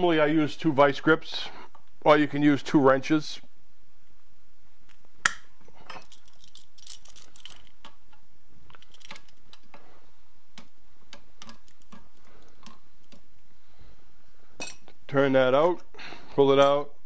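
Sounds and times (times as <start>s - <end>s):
metal tools clinking: 5.8s - 7.8s.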